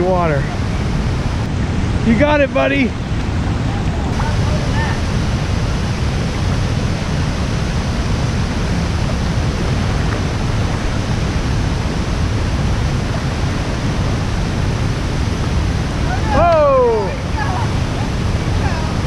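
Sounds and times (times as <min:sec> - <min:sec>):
river pouring over waterfall: 0:00.0 - 0:19.0.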